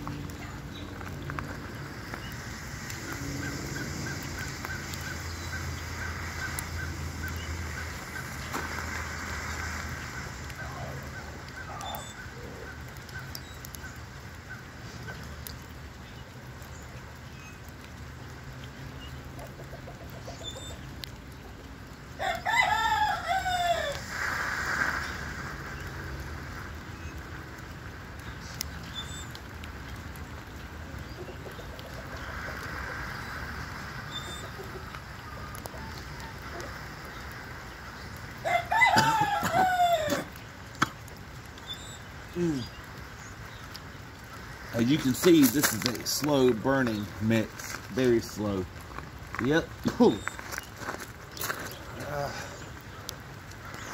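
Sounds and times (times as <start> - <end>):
rooster crowing: 22.2 - 24.1, 38.4 - 40.3.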